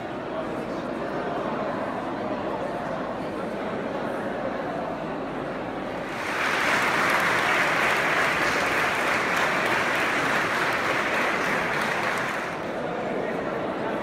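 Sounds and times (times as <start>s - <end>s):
crowd applauding: 6.0s - 12.8s.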